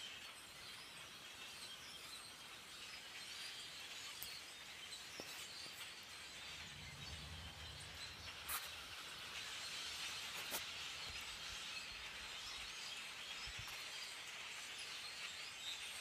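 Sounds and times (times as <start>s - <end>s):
low rumble: 6.4s - 9.4s.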